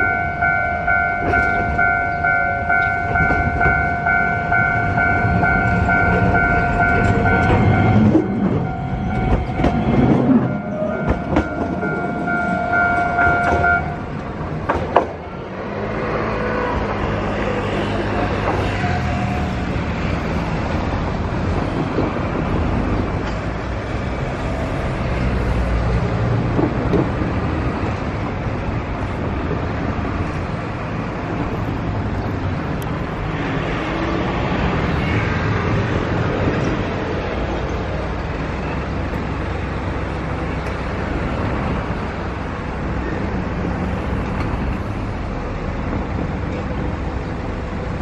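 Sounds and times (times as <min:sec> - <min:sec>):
traffic rumble: 0:00.0 - 0:48.0
tram wheels knocking on rails: 0:01.2 - 0:15.3, 0:17.6 - 0:25.2, 0:25.9 - 0:34.0.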